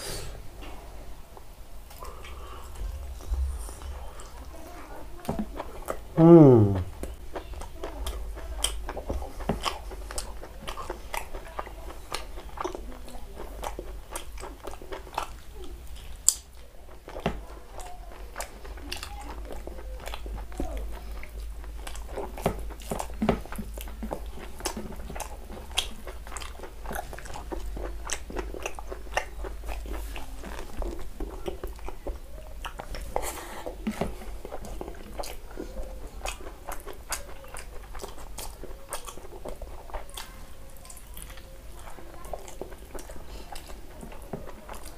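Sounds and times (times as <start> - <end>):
low steady hum: 0.0 - 44.9
man chewing food: 0.0 - 44.9
wet mouth clicks and smacks: 16.0 - 16.6.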